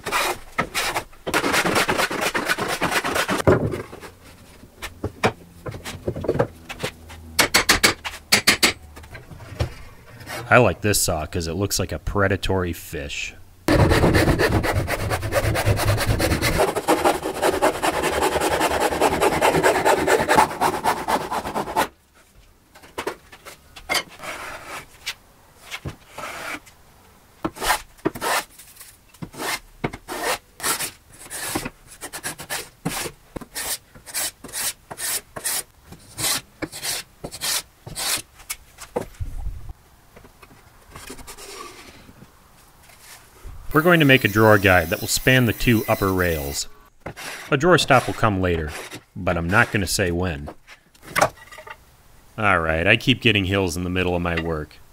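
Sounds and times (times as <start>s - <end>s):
hand saw cutting board: 0.0s - 3.4s, 13.7s - 21.9s, 43.7s - 49.9s
hand plane strokes: 13.7s - 21.9s, 42.9s - 49.8s.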